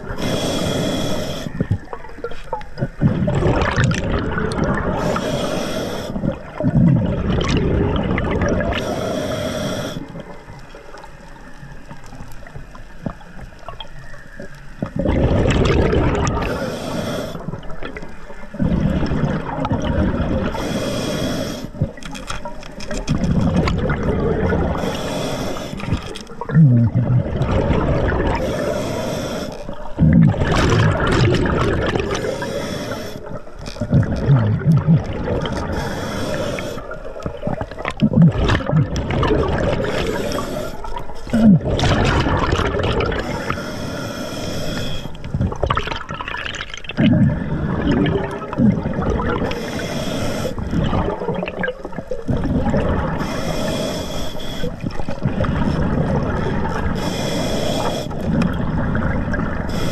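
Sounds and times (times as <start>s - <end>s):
water noise: 0.0s - 59.9s
regulator inhale hiss: 0.1s - 1.8s, 4.9s - 6.4s, 8.7s - 10.4s, 16.4s - 17.7s, 20.5s - 21.9s, 24.7s - 26.2s, 28.4s - 29.8s, 32.1s - 33.5s, 35.7s - 37.2s, 39.8s - 41.3s, 43.2s - 45.3s, 49.4s - 50.7s, 53.2s - 55.1s, 56.9s - 58.4s, 59.6s - 59.9s
exhaust bubbles rushing: 2.8s - 5.0s, 6.3s - 8.7s, 15.0s - 16.5s, 26.5s - 28.4s, 30.0s - 32.2s, 41.3s - 43.2s, 45.4s - 49.4s.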